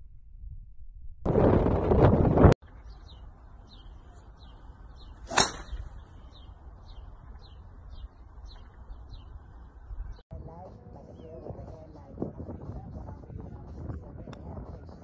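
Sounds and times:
small birds chirping: 0:02.6 - 0:12.1
club swish: 0:05.2 - 0:05.9
golf club striking ball: 0:05.2 - 0:06.0.

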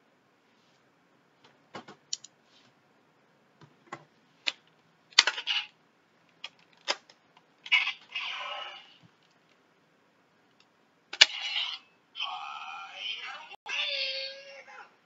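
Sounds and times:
plastic toy parts clicking: 0:02.1 - 0:02.3, 0:05.2 - 0:05.7.

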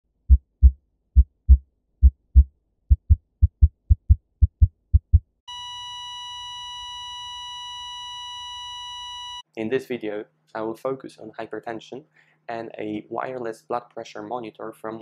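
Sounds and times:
heartbeat thumps: 0:00.2 - 0:05.4
cardiac monitor flatline beep: 0:05.5 - 0:09.4.

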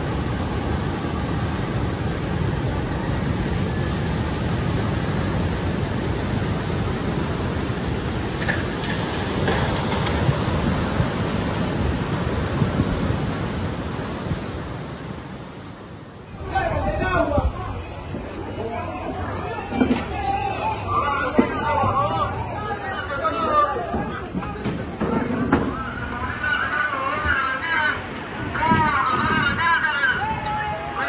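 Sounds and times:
wind noise: 0:00.0 - 0:18.4, 0:28.0 - 0:31.0
water rushing ashore: 0:00.0 - 0:31.0.

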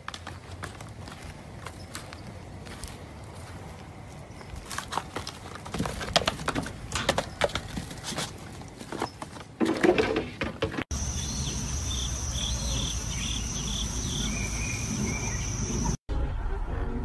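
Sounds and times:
hooves clattering on wood: 0:00.0 - 0:11.0
insect chirps: 0:10.9 - 0:16.0
insects droning: 0:10.9 - 0:16.0.

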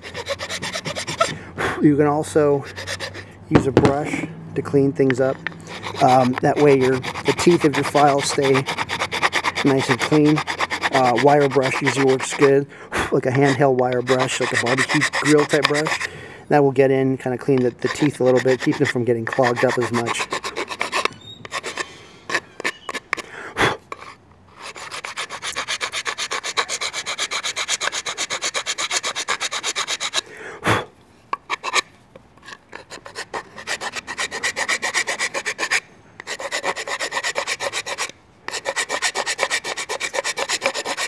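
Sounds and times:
hand file rasping on wood: 0:00.0 - 0:01.4, 0:02.6 - 0:03.2, 0:05.2 - 0:16.1, 0:17.5 - 0:23.2, 0:23.9 - 0:30.2, 0:31.5 - 0:31.8, 0:32.4 - 0:41.0
sharp knocks: 0:03.5 - 0:04.1.

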